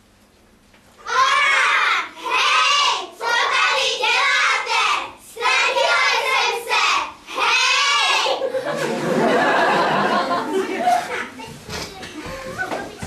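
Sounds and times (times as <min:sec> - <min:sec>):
children calling out: 0:01.0 - 0:03.0.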